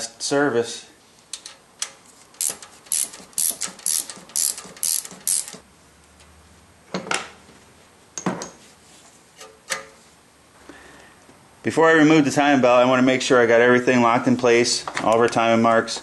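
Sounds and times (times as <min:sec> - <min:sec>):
ratchet wrench clicking: 0:01.3 - 0:05.6.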